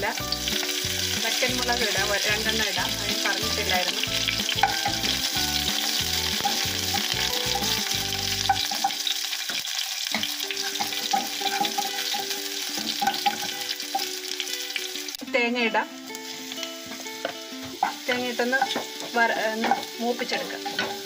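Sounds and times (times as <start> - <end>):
food sizzling in hot oil: 0.0 - 21.0
spatula scraping and tapping pan: 3.1 - 14.2, 16.2 - 21.0.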